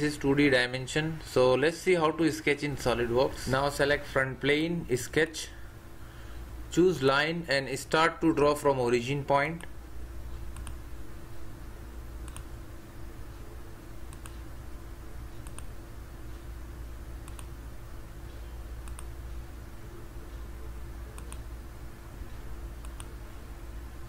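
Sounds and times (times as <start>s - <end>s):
steady low hum: 0.0s - 24.0s
computer mouse clicking: 10.5s - 10.8s, 12.2s - 12.5s, 14.1s - 14.4s, 15.4s - 15.7s, 17.2s - 17.5s, 18.8s - 19.1s, 21.2s - 21.5s, 22.8s - 23.2s.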